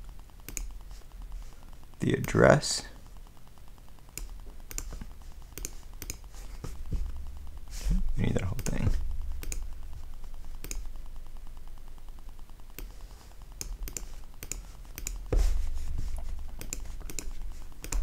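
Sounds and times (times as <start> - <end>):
steady low hum: 0.0 - 18.0
keyboard and mouse clicks: 0.4 - 0.8, 4.1 - 6.2, 8.6 - 9.7, 10.5 - 10.9, 12.7 - 13.0, 13.6 - 15.3, 16.5 - 18.0.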